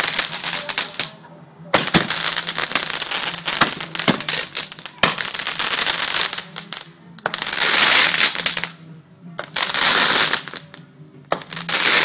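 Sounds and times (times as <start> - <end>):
fireworks sharp bang: 0.0 - 6.4
firecracker pops crackling: 0.0 - 8.8, 9.4 - 12.0
hissing crackle: 0.0 - 8.8, 9.4 - 12.0.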